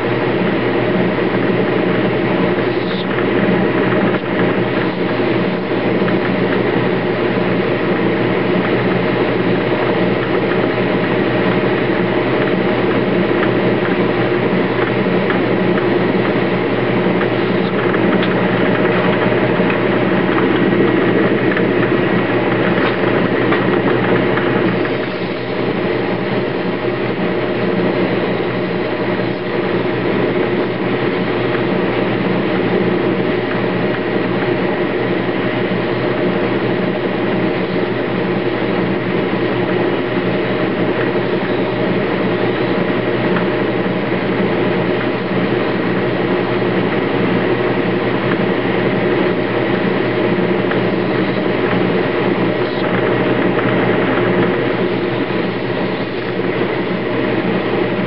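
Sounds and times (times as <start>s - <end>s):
metal lathe whining and humming: 0.0s - 58.0s.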